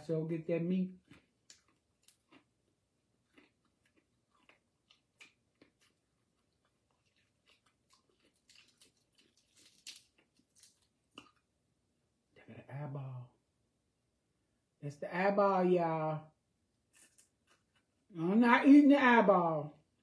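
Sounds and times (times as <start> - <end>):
chewing and crunching fried fish: 0.9 - 11.6, 16.8 - 18.1.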